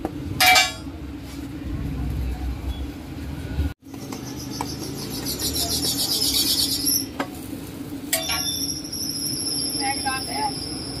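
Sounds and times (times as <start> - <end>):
sandwich grilling on griddle: 4.3 - 11.0.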